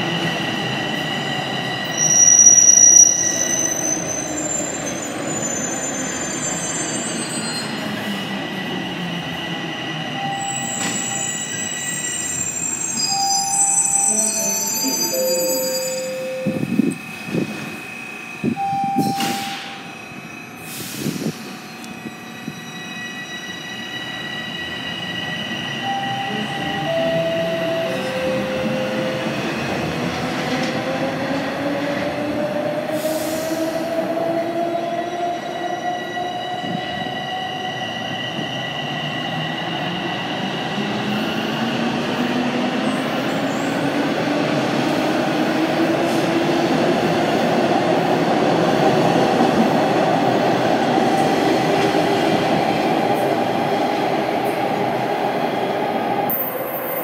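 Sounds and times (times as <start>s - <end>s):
three-note falling chime: 13.3s - 16.7s.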